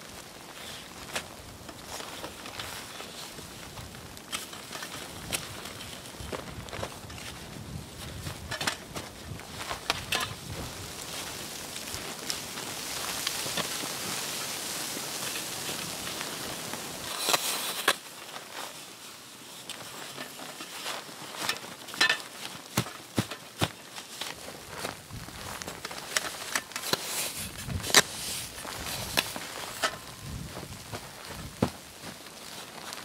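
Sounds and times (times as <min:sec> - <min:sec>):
rustling hiss: 0:00.0 - 0:33.0
tent stakes hammered into snow: 0:20.1 - 0:32.9.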